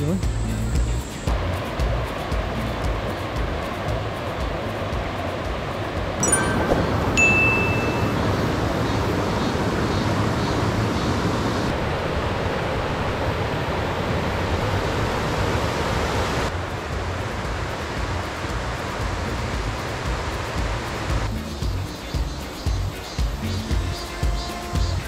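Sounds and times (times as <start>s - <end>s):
stream water rushing over weir: 0.7s - 25.0s
high ringing tone: 6.2s - 8.4s.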